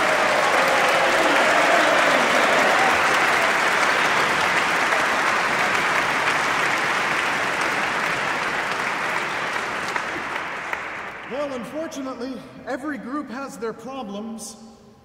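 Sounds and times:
audience applause: 0.0 - 11.7.

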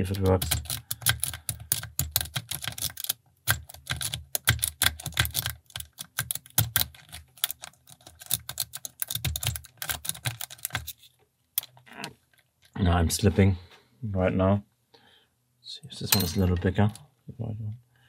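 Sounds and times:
lock pick clicking and scraping: 0.0 - 11.8.

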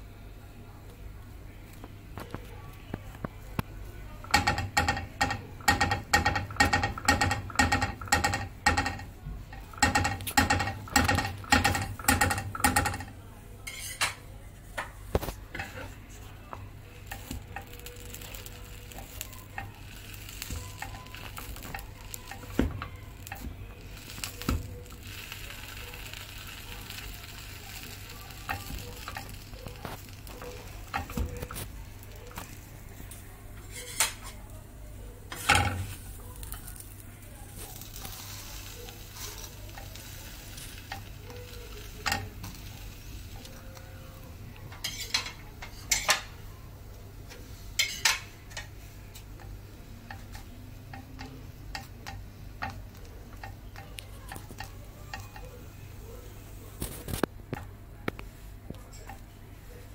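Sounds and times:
spatula tapping and scraping pan: 4.3 - 13.1, 17.1 - 25.4, 26.0 - 32.6, 37.8 - 43.6, 44.7 - 46.3, 47.8 - 55.6
sandwich sizzling in a pan: 16.7 - 46.5.

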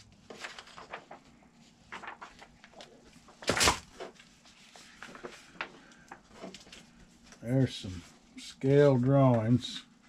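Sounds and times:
paper rustling: 0.0 - 8.1
paper slap: 3.4 - 4.0.

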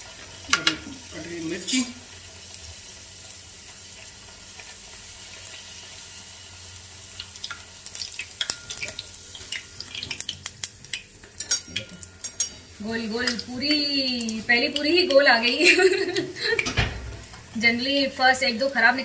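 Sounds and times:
hot oil sizzling: 0.0 - 19.0
steel spoon scraping pan: 11.2 - 13.5.

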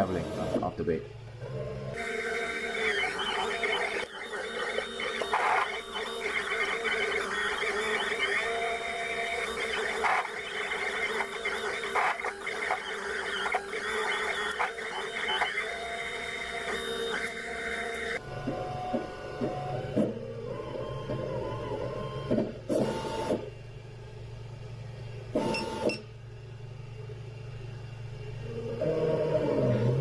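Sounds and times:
stepper motors whining: 1.4 - 23.3.

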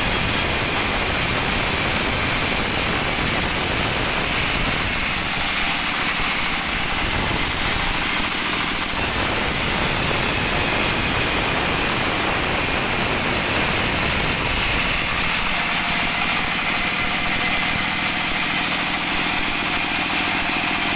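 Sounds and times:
band saw cutting log: 0.0 - 20.9.

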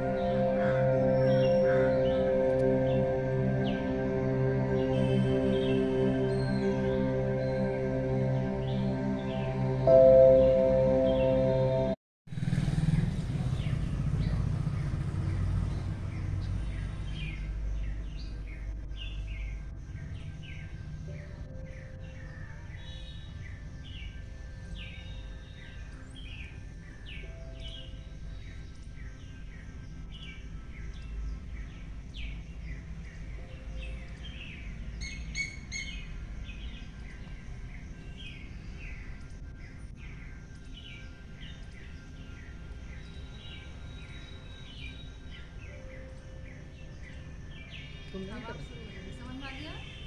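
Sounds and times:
small birds chirping: 12.8 - 50.0.

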